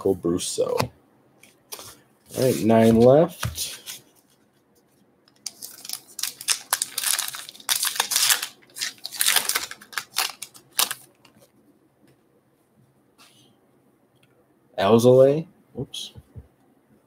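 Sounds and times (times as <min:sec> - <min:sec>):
card pack wrapper tearing: 0:05.4 - 0:11.3.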